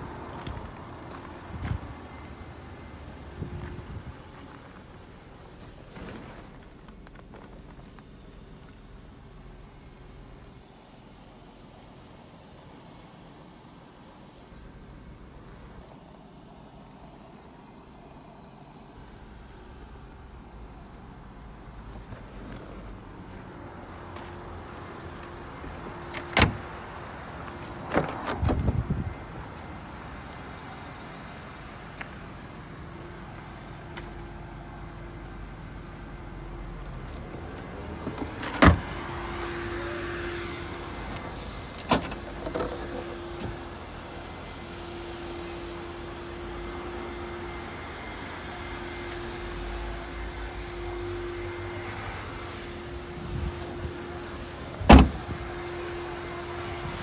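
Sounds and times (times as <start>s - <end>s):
vehicle hum: 0.0s - 57.0s
car door clunk: 26.1s - 26.6s, 38.1s - 38.9s, 41.8s - 43.7s, 54.8s - 55.4s.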